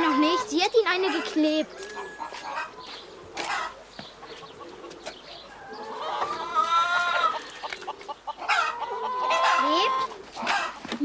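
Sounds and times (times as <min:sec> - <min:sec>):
hen clucking: 0:00.0 - 0:11.0.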